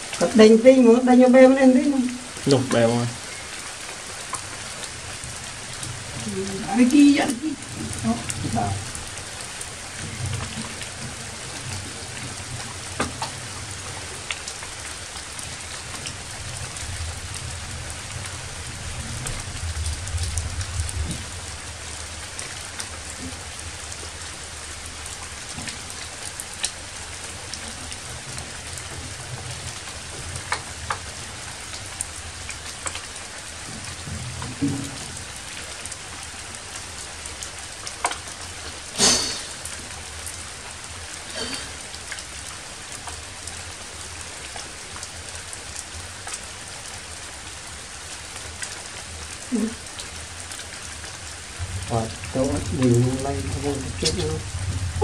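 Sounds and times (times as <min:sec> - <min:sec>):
steady rain falling: 0:00.0 - 0:55.0
soft low rumble: 0:51.6 - 0:55.0.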